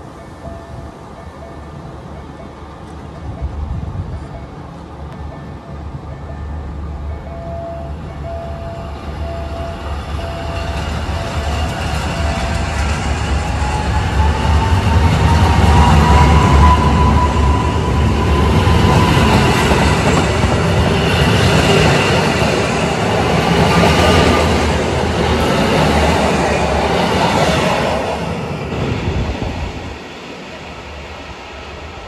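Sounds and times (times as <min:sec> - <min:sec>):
train wheels rumbling and clicking: 0:10.0 - 0:30.1.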